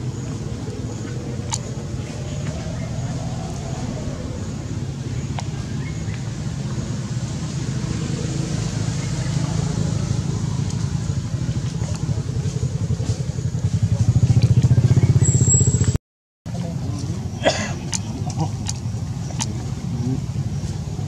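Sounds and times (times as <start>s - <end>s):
motorcycle engine throbbing: 0.0s - 16.0s.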